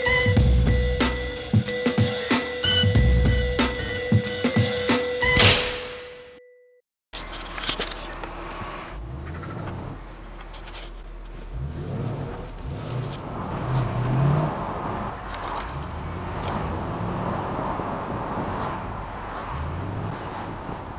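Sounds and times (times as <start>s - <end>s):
car engine revving: 8.2s - 20.9s.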